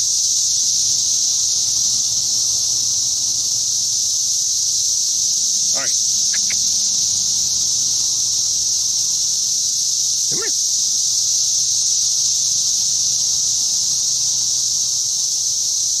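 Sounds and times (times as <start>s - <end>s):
cicadas droning: 0.0s - 16.0s
short insect call: 0.0s - 16.0s
faint chirps: 5.7s - 6.8s, 10.2s - 10.6s.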